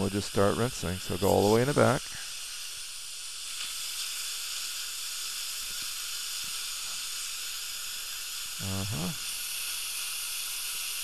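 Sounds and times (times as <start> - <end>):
air-water syringe hissing: 0.0 - 11.0
dental suction hissing: 0.0 - 11.0.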